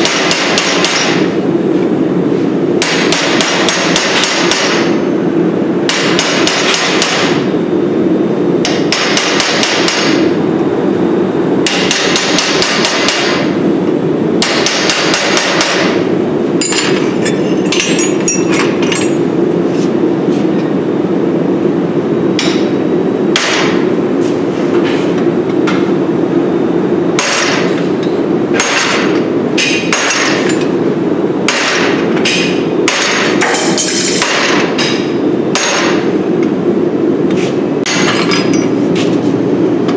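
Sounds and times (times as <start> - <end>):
hammer striking metal on anvil: 0.0 - 1.3, 2.8 - 5.0, 5.9 - 7.5, 8.6 - 10.3, 11.6 - 13.5, 14.4 - 16.0, 16.6 - 19.2, 22.4 - 23.8, 27.2 - 27.8, 28.5 - 30.7, 31.5 - 36.1, 37.8 - 38.8.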